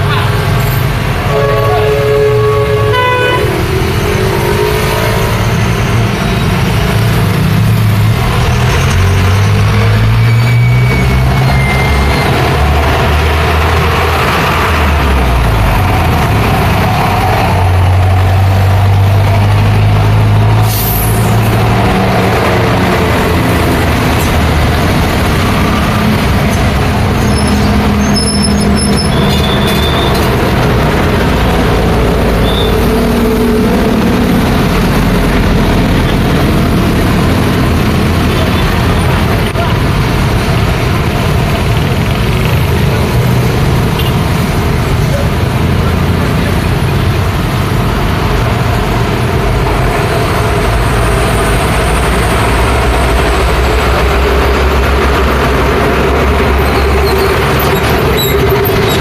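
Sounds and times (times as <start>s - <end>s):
truck diesel engine droning: 0.0s - 59.0s
motorcycles and cars passing: 21.3s - 59.0s.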